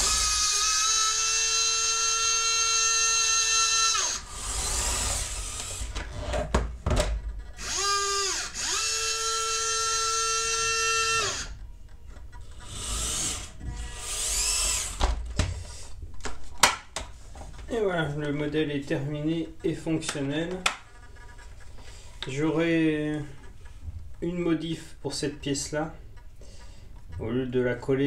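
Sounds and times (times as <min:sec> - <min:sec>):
electric motor whining: 0:00.0 - 0:06.0, 0:07.6 - 0:11.6, 0:12.6 - 0:15.0
hissing whirs: 0:00.0 - 0:06.2, 0:12.6 - 0:15.0.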